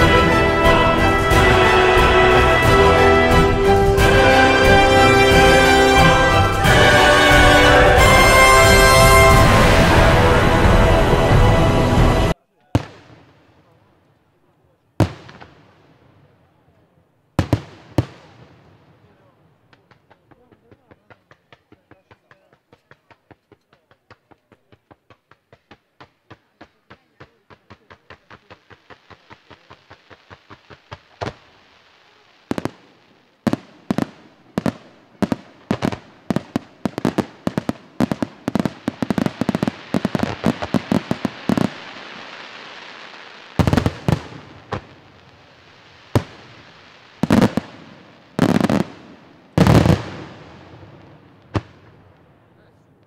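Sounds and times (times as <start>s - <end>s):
aerial firework bursts: 0.0s - 12.4s
crackling hiss of fireworks: 0.0s - 53.0s
rapid firework pops: 19.7s - 32.9s, 33.5s - 45.4s, 46.0s - 52.3s.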